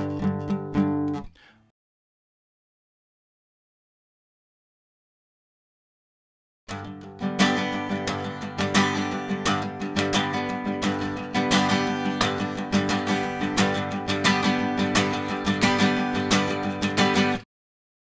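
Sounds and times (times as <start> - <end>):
acoustic guitar strumming: 0.0 - 1.6, 6.7 - 17.4.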